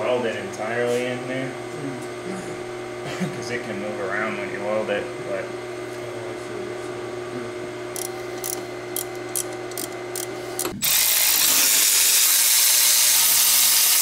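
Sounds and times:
cordless ratchet motor buzzing: 0:07.9 - 0:14.0
ratchet clicks: 0:08.0 - 0:14.0.

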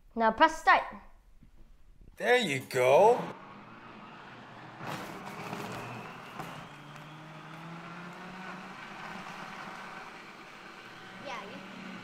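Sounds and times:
blender whirring: 0:03.3 - 0:12.0.

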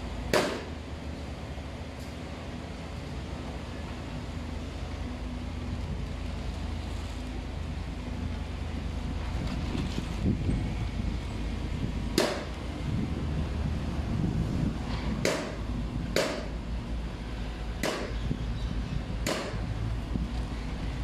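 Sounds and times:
wind rumble on microphone: 0:05.6 - 0:21.0
sharp knocks: 0:14.9 - 0:15.6, 0:16.2 - 0:16.5, 0:17.8 - 0:18.2, 0:19.2 - 0:19.6.

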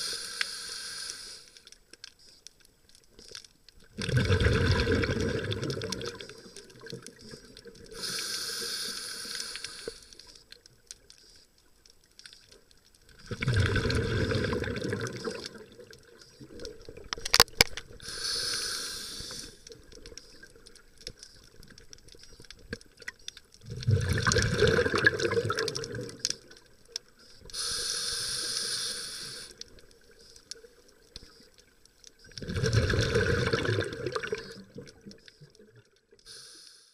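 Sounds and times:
regulator hiss on inhale: 0:00.0 - 0:02.5, 0:06.2 - 0:10.6, 0:11.2 - 0:11.6, 0:17.9 - 0:20.6, 0:27.2 - 0:31.6, 0:36.2 - 0:36.9
rush of exhaled bubbles: 0:03.9 - 0:07.3, 0:13.2 - 0:15.9, 0:23.6 - 0:26.3, 0:32.4 - 0:35.1.

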